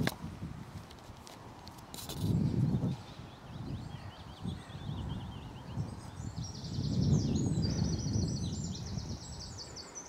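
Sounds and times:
songbird chirping: 2.6 - 10.0.

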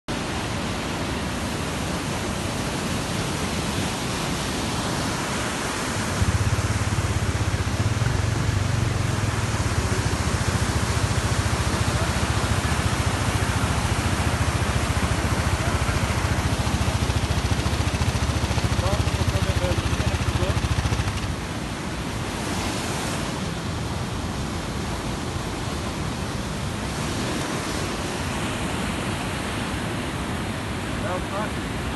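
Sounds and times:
stream rushing: 0.1 - 31.9
low rumble: 6.2 - 21.4.

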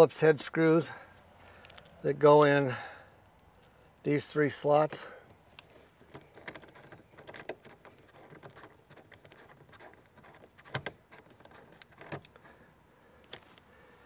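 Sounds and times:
screwdriver clicks and scrapes: 5.6 - 12.5.

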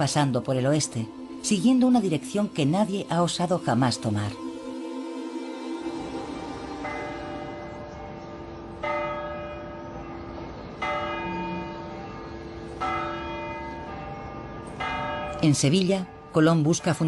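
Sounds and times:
church bell tolling: 5.9 - 17.0.

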